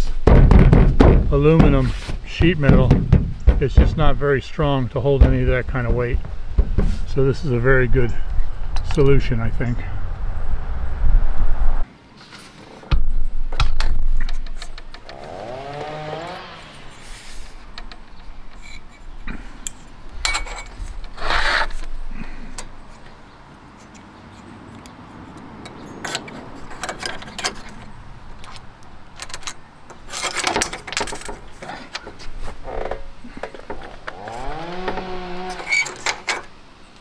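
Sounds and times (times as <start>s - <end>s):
metal scraping on aluminium frame: 14.2s - 21.9s.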